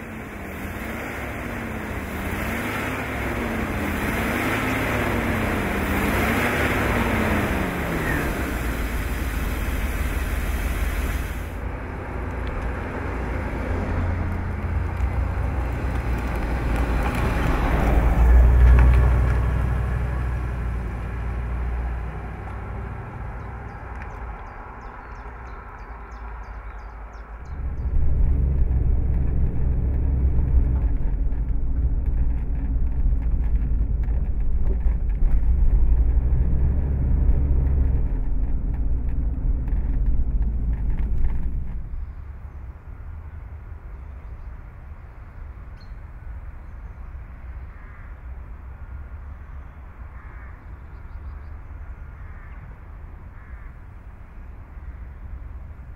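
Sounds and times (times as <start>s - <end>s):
car driving past: 0.0s - 42.7s
low rumble inside car cabin: 27.4s - 42.8s.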